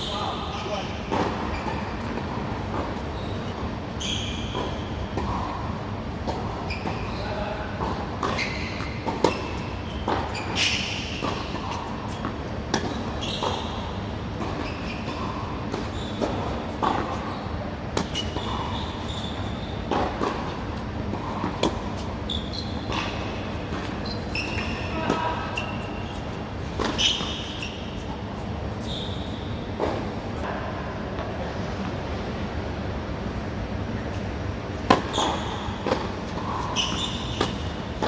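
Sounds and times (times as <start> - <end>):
steady background hum: 0.0 - 38.0
tennis ball struck and bouncing: 34.8 - 38.0.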